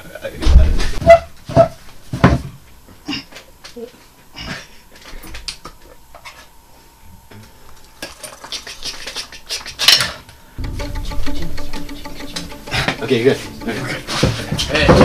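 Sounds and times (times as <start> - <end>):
low steady sound: 10.6 - 15.0.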